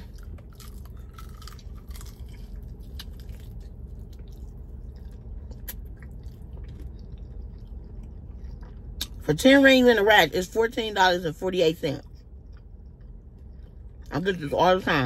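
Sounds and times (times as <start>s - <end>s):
chewing and biting food: 0.0s - 9.4s, 12.0s - 14.4s.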